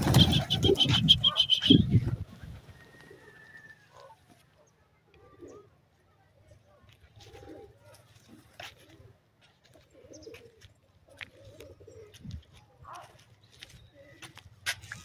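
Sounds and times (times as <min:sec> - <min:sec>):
pigeons cooing: 0:00.0 - 0:04.2, 0:05.1 - 0:05.8, 0:07.2 - 0:07.9, 0:08.6 - 0:12.5.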